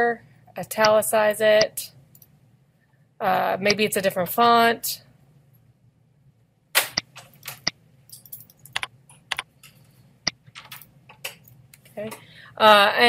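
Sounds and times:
keyboard and mouse clicks: 8.6 - 11.4.

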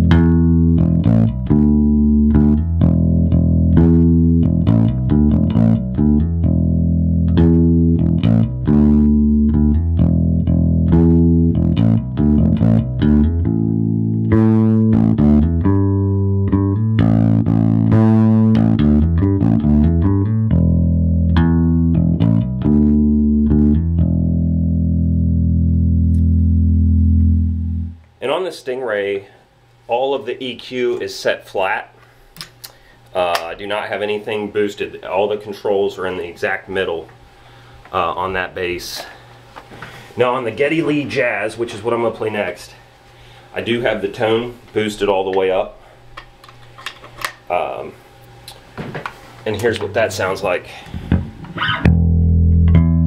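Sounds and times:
bass guitar plucked riff: 0.0 - 28.0, 50.8 - 53.0.

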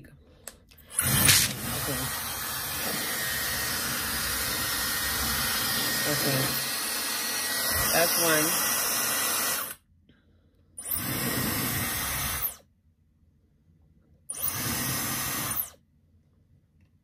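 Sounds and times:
hair dryer blowing: 1.0 - 9.8.

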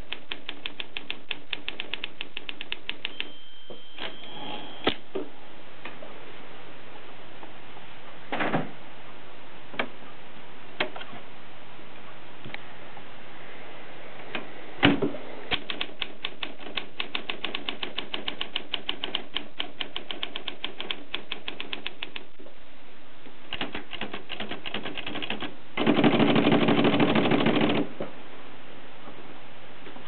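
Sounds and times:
typewriter keystrokes: 0.0 - 3.3, 15.5 - 22.3, 23.5 - 27.9
typewriter rattle: 15.5 - 22.2, 23.5 - 27.9.

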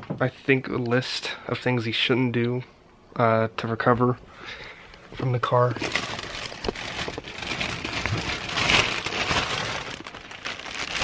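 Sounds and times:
plastic bag rustling: 5.4 - 11.0.

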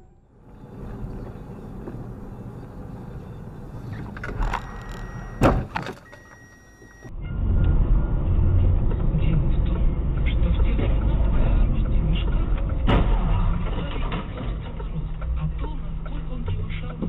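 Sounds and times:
car driving low rumble: 0.0 - 17.0
road noise inside car: 0.0 - 17.0
car collision bang: 5.4 - 6.0, 12.8 - 14.4.

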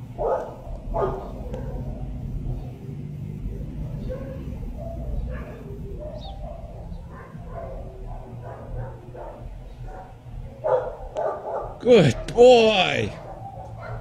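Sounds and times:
low steady rumble: 0.0 - 11.1
faint dogs barking: 0.0 - 14.0.

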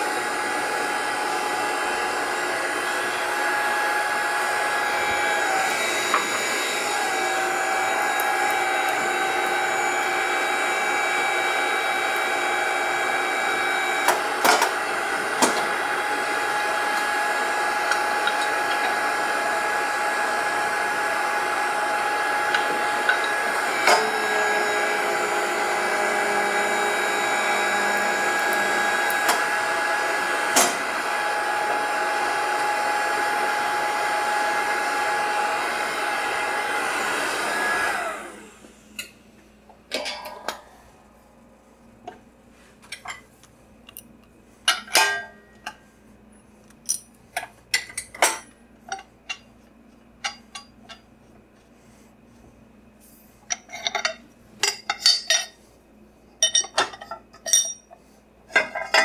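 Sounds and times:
hydraulic pump motor whine: 0.0 - 39.0.

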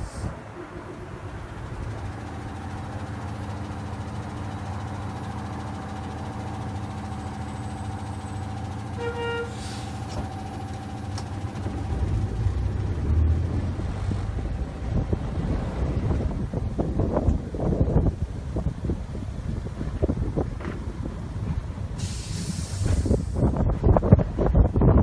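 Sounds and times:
low rumble: 0.0 - 5.2, 9.9 - 25.0
tram mechanical hum: 0.0 - 25.0
wind on microphone: 11.7 - 25.0.

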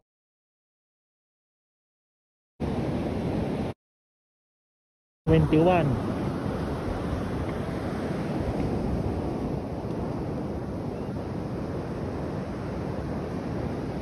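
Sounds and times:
ocean surf washing onto beach: 5.3 - 14.0
wind buffeting microphone: 5.4 - 14.0.

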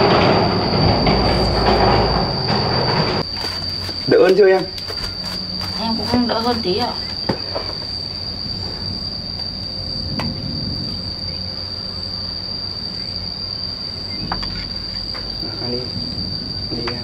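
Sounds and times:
high-pitched insect drone: 0.0 - 17.0
low background rumble: 5.2 - 17.0.

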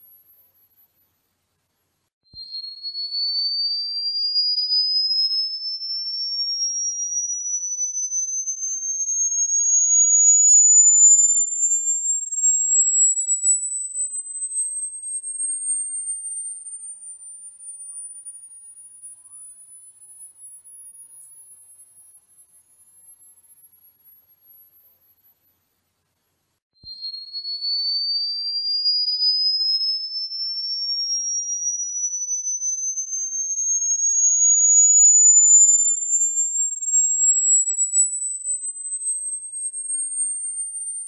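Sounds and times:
rising high-pitched sine tone: 4.2 - 16.9, 28.6 - 41.0.

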